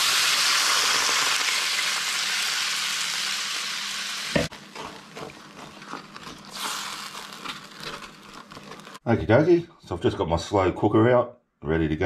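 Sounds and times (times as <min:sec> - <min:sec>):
wine sizzling in hot pan: 0:00.0 - 0:09.0
wooden spoon scraping pan: 0:04.5 - 0:09.0.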